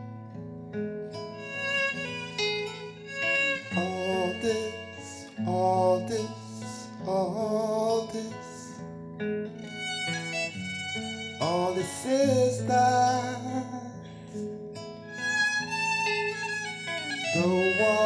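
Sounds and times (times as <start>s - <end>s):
string accompaniment: 1.2s - 6.6s, 9.6s - 13.7s, 14.9s - 18.0s
man singing: 3.6s - 8.8s, 11.4s - 14.3s, 17.2s - 18.0s.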